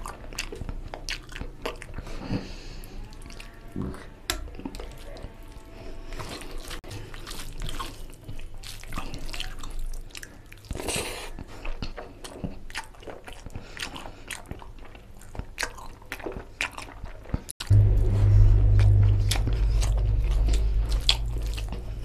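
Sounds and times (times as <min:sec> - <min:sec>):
wet chewing and mouth clicks: 0:00.0 - 0:17.7, 0:18.7 - 0:22.0
loud low hum: 0:17.6 - 0:22.0.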